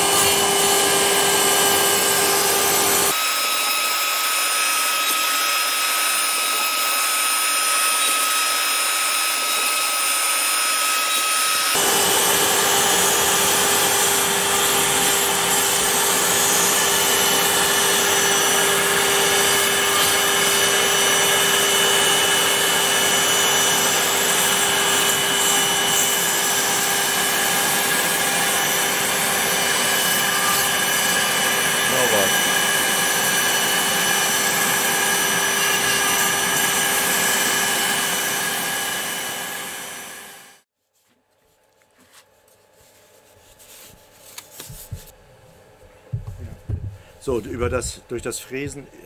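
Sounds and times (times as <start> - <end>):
router spindle whining: 0.0 - 40.6.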